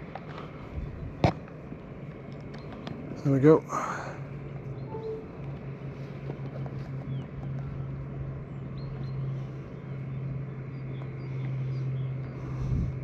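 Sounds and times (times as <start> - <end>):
low mechanical hum: 0.0 - 13.0
outdoor noise: 0.0 - 13.0
faint high chirps: 4.8 - 5.6.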